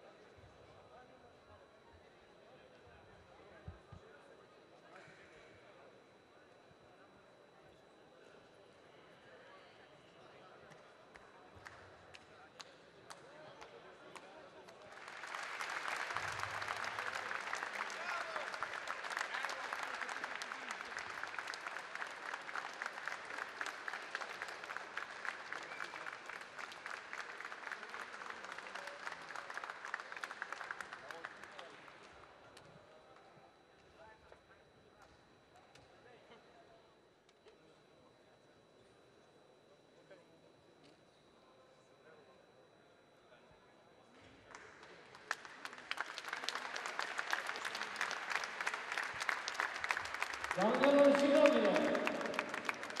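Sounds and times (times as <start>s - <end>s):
crowd applauding: 14.6s - 32.2s, 44.5s - 53.0s.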